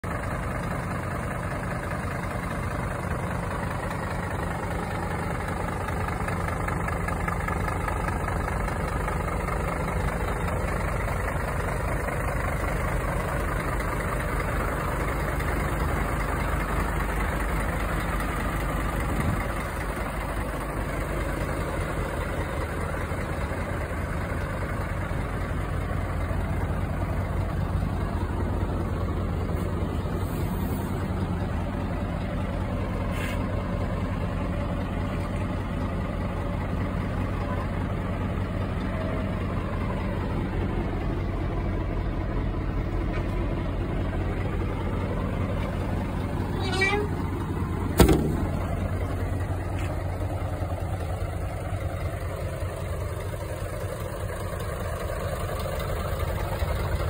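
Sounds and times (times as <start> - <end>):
diesel truck engine idling: 0.0 - 57.0.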